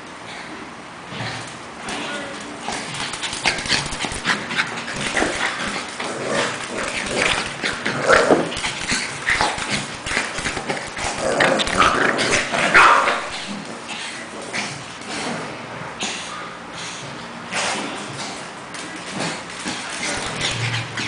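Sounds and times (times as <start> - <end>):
paws scuffling and claws clicking: 2.4 - 12.5, 17.8 - 21.0.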